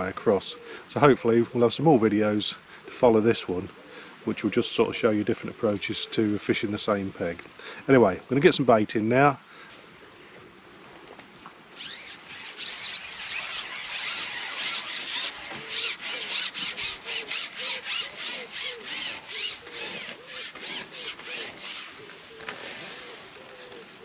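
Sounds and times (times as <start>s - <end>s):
fishing pole rasping as it slides: 11.7s - 23.4s.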